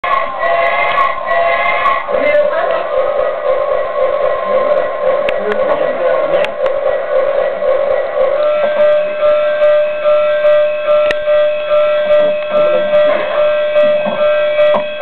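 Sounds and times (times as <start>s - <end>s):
electronic toy beeping tones: 8.4s - 15.0s.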